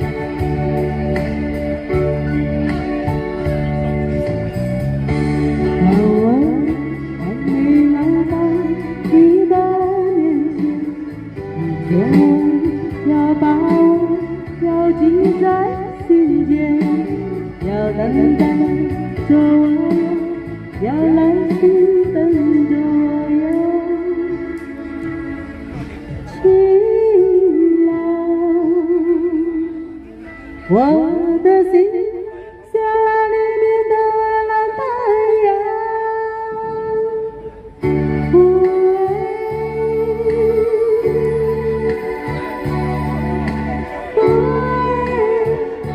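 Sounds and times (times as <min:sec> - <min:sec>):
guitar accompaniment: 0:00.0 - 0:45.9
karaoke backing track: 0:00.0 - 0:45.9
woman singing into microphone: 0:05.1 - 0:25.4, 0:26.1 - 0:45.9.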